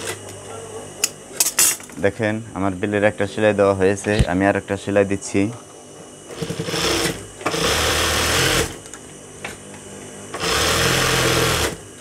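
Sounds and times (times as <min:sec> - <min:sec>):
sewing machine stitching: 0:06.3 - 0:08.8, 0:10.4 - 0:11.8.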